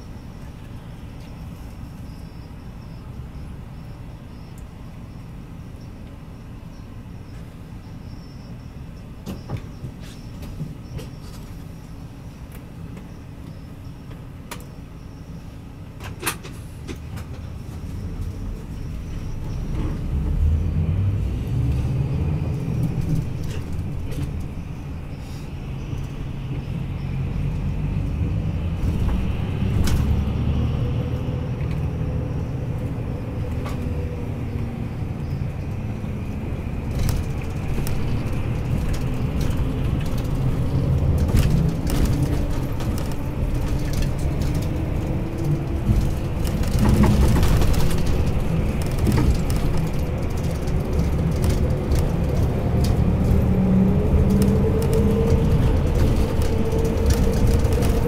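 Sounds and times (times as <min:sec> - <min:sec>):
bus engine and road rumble: 0:00.0 - 0:58.0
sharp clicks and rattles in cabin: 0:22.8 - 0:24.7, 0:36.8 - 0:58.0.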